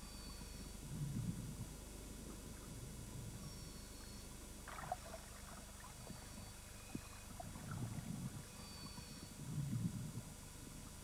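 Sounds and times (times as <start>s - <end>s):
soft water sounds: 0.1s - 11.0s
low underwater rumble: 4.6s - 11.0s.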